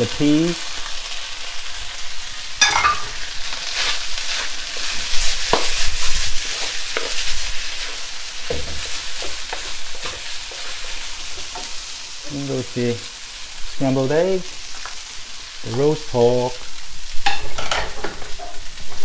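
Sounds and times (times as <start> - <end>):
rice sizzling in a wok: 0.0 - 19.0
spatula scraping and knocking wok: 2.6 - 12.0, 17.1 - 19.0.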